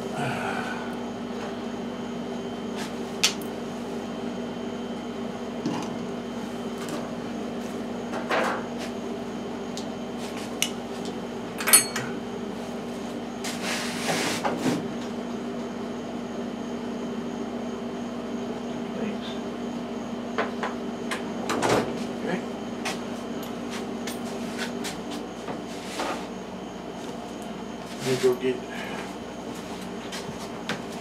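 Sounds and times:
steady low hum: 0.0 - 31.0
tools clattering: 11.6 - 12.1.

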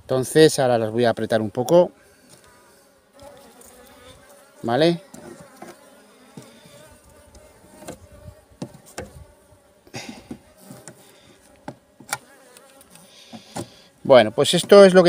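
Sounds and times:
honeybees buzzing: 1.6 - 15.0
wooden knocks and scrapes: 13.3 - 13.8.

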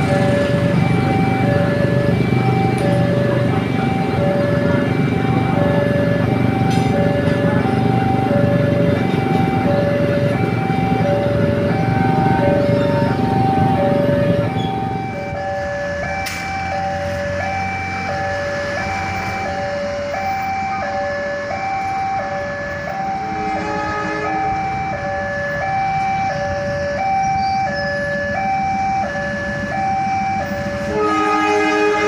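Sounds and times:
level crossing alarm chime: 0.0 - 31.0
low rumble of traffic: 0.0 - 32.0
train horn: 23.3 - 24.6, 30.9 - 32.0.

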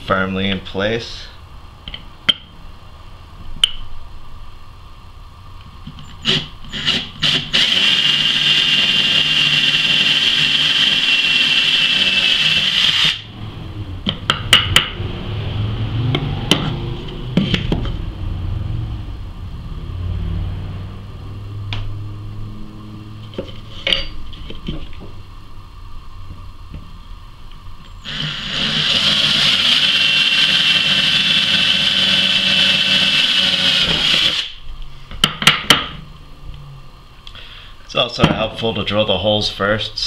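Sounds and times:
drill boring through metal: 6.2 - 13.3, 28.0 - 34.6.

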